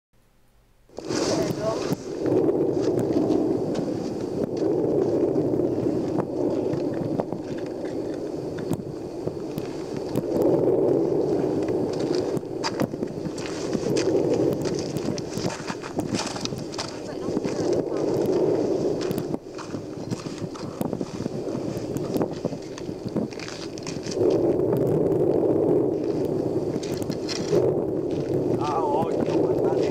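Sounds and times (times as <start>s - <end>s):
lava fountain roaring: 0.9s - 29.9s.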